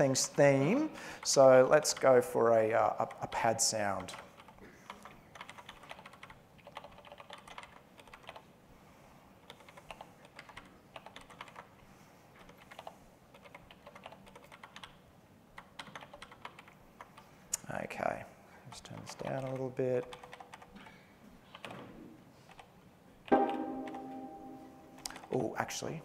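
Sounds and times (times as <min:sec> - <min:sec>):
keyboard typing: 0:03.0 - 0:08.5, 0:09.4 - 0:11.7, 0:12.4 - 0:15.0, 0:15.6 - 0:17.2, 0:18.9 - 0:20.8.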